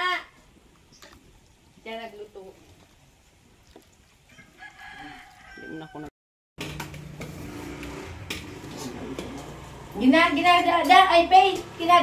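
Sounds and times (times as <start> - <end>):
rooster crowing: 4.3 - 6.1.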